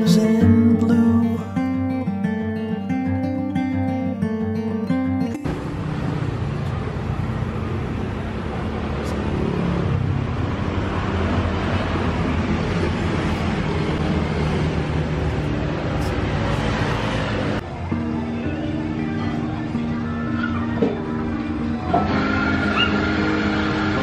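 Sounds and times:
road traffic rumble: 5.3s - 24.0s.

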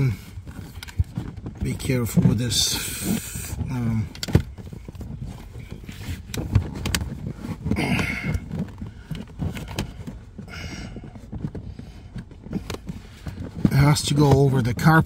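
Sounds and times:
plastic scrape: 0.0s - 15.0s
plastic clicks and knocks: 3.5s - 10.4s.

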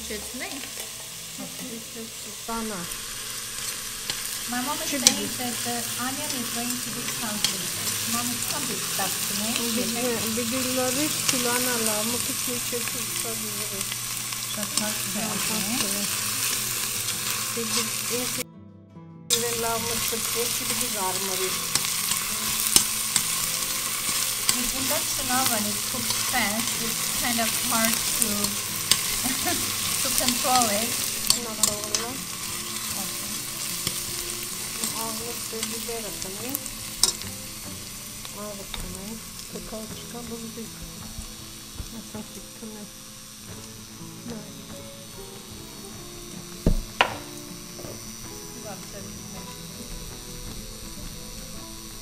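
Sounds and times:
onion sizzling in oil: 0.0s - 18.4s, 19.3s - 52.0s
metal spoon clinking pot: 37.0s - 37.2s.

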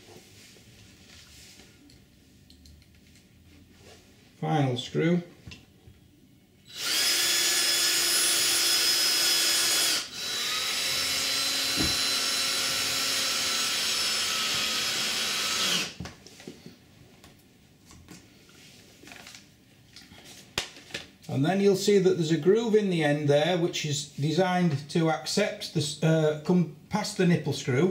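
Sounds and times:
drill driving a screw: 6.7s - 16.0s.

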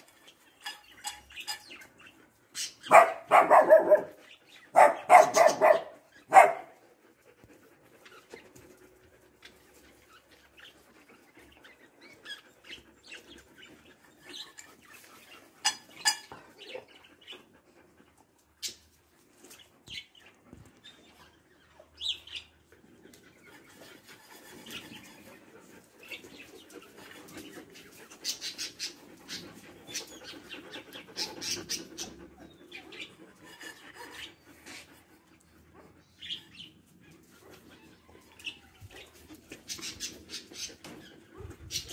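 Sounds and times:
dog barking: 2.9s - 6.8s.

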